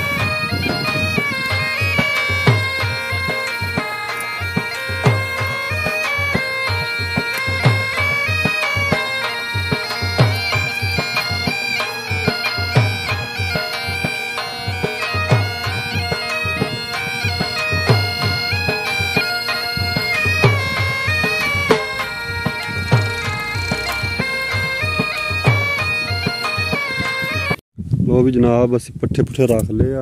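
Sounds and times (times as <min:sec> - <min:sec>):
drum beat: 0:00.0 - 0:27.6
stepping melody: 0:00.0 - 0:27.6.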